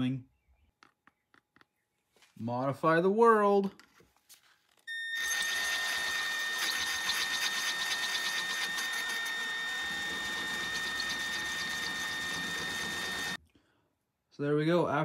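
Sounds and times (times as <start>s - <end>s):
drill bit scraping metal: 4.9s - 13.4s
power drill whining: 4.9s - 13.4s.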